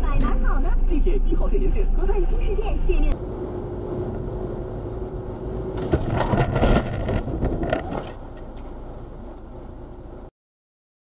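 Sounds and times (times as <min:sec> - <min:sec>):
road and engine noise: 0:00.0 - 0:10.3
car crash impacts crunching metal: 0:05.7 - 0:08.3.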